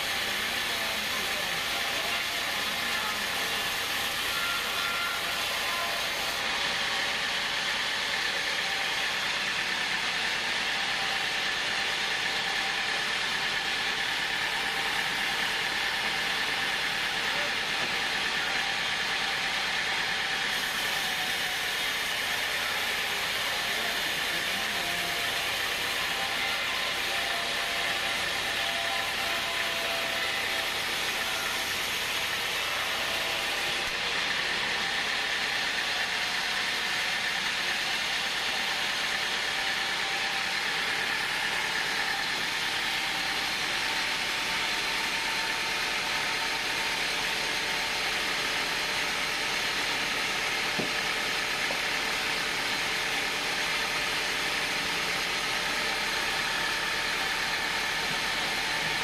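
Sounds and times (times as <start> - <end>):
band saw blade hissing through wood: 20.5 - 26.2.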